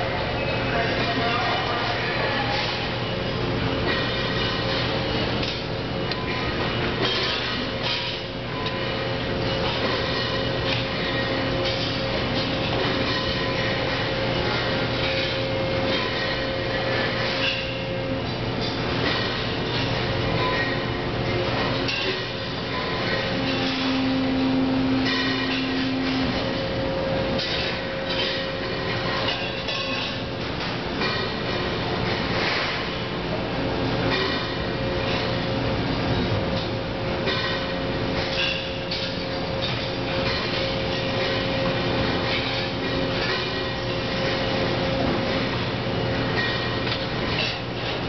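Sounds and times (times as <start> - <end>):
production line machinery humming: 0.0 - 48.0
steady mid-pitched tone: 23.3 - 27.4.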